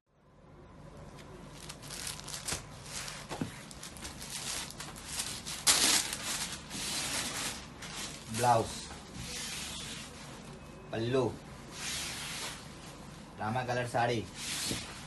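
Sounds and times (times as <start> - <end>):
silk fabric rustling and swishing: 1.9 - 10.5, 11.7 - 13.1, 14.3 - 15.0.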